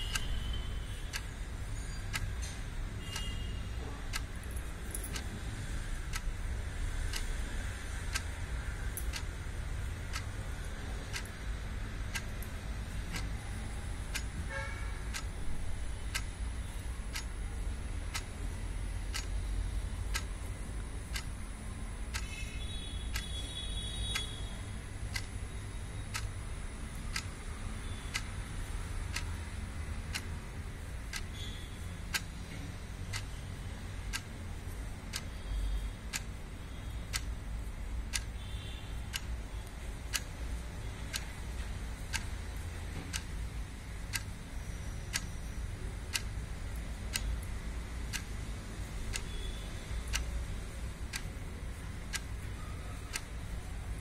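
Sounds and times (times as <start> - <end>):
clock ticking: 0.0 - 54.0.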